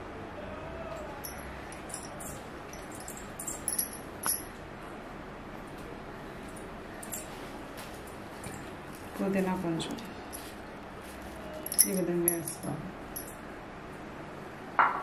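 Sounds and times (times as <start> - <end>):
steady background noise: 0.0 - 15.0
small sharp clicks and clinks: 1.2 - 4.6, 7.0 - 7.3, 11.6 - 13.4.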